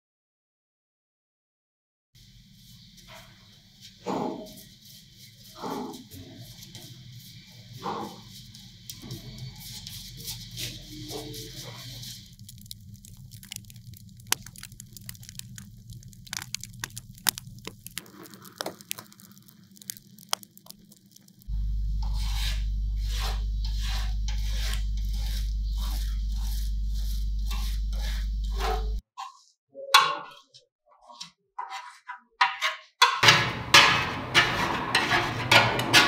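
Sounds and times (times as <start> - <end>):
paint crackling: 8.2 - 29.0
steady low hum: 21.4 - 29.0
wire brush scrubbing metal: 22.0 - 29.0, 33.2 - 36.0.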